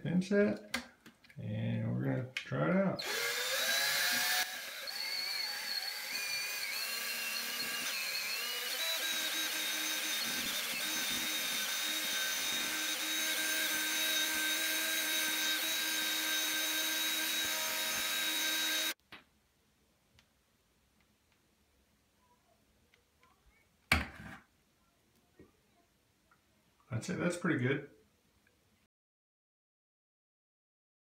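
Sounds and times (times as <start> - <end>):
cordless drill motor whine: 3.0 - 19.0.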